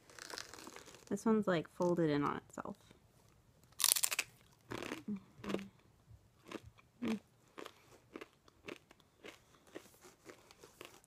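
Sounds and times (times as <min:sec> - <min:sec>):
crunchy chip being chewed: 0:03.8 - 0:05.7, 0:06.4 - 0:11.0.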